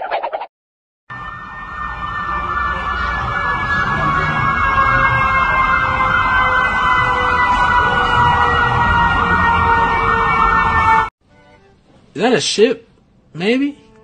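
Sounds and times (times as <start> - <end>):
siren sounding: 1.1 - 11.1.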